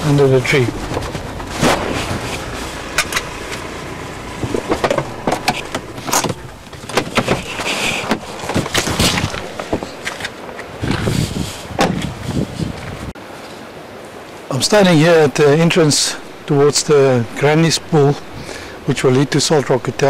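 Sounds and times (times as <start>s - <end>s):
car running noise: 0.0s - 13.0s
sharp clicks and knocks: 0.7s - 3.7s, 4.4s - 10.7s.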